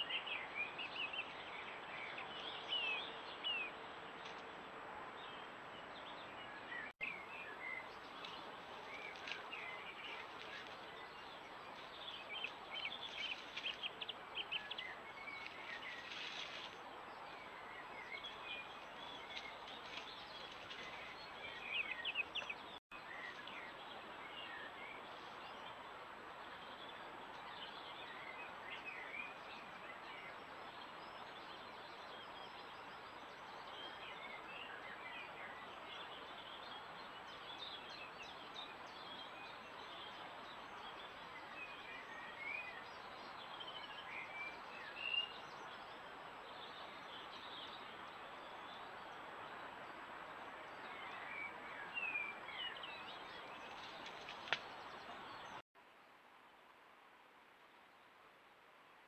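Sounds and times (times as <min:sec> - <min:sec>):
birds chirping and trilling: 0:05.2 - 0:55.6.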